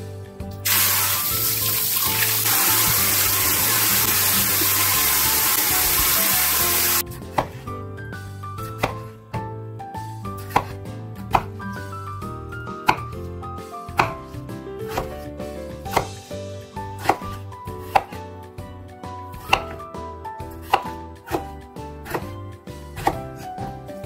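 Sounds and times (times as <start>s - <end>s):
kitchen tap running: 0.6s - 7.0s
knife cutting on wooden board: 6.7s - 7.7s, 8.6s - 9.2s, 10.4s - 11.9s, 12.8s - 13.3s, 13.9s - 15.2s, 15.9s - 16.2s, 17.0s - 18.2s, 19.3s - 19.8s, 20.5s - 22.4s, 23.0s - 23.7s.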